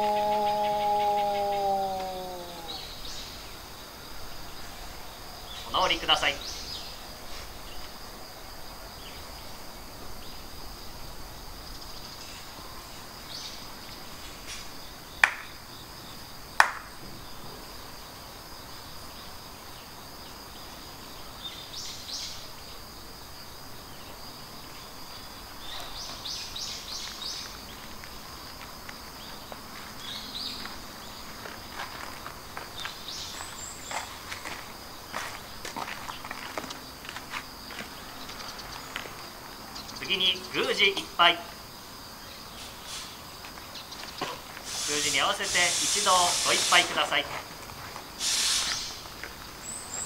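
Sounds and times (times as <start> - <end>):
insect trilling bursts: 0.0 - 7.8, 40.0 - 41.8, 44.3 - 49.2
high insect drone: 0.0 - 50.0
sharp cracks: 15.2 - 15.6, 16.6 - 17.0.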